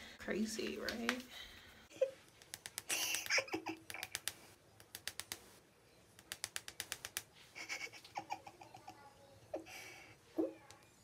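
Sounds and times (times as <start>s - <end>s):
light sharp clicks and taps: 2.3s - 5.5s, 6.2s - 7.3s.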